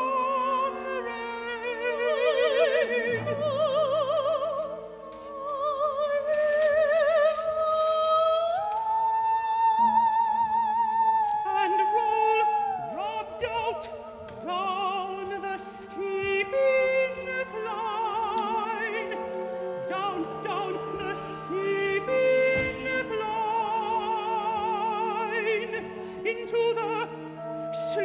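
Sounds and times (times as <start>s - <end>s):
operatic singing: 0.0s - 28.0s.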